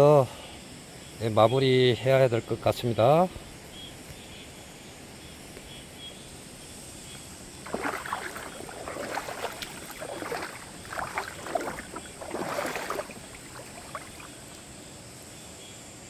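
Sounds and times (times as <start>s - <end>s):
feet wading through stony water: 7.6s - 14.7s
water splashes: 7.6s - 14.7s.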